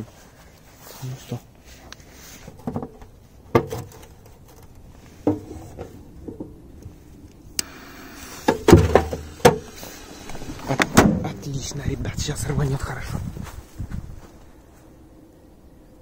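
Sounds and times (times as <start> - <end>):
metal clanks and knocks: 2.5 - 6.6, 8.4 - 9.7
fuse hissing: 6.8 - 10.9.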